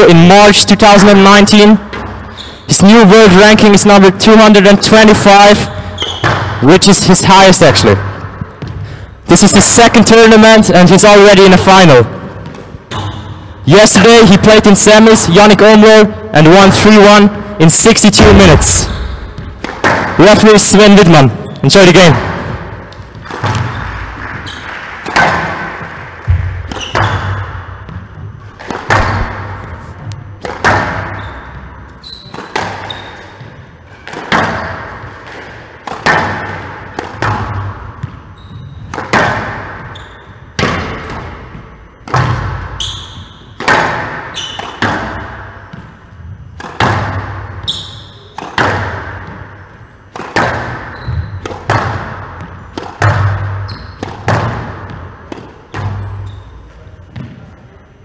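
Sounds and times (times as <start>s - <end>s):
squash ball hit with racket: 6.0s - 6.6s, 18.2s - 20.2s, 22.1s - 56.3s.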